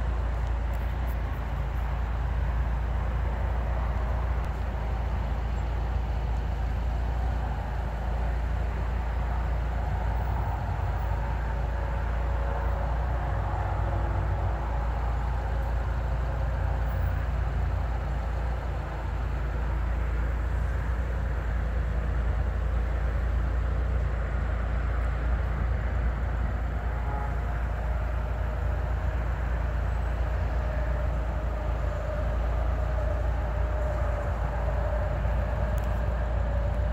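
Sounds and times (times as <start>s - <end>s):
car engine and tyres rumbling: 0.0s - 36.9s.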